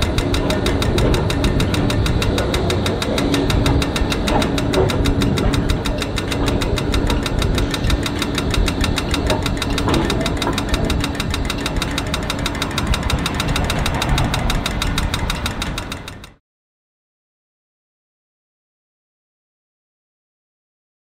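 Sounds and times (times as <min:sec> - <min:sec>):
engine idling with fast knocking: 0:00.0 - 0:16.4.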